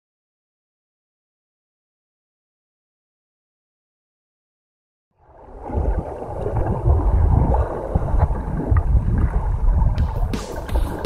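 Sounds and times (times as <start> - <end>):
muffled underwater rumbling: 5.2 - 11.0.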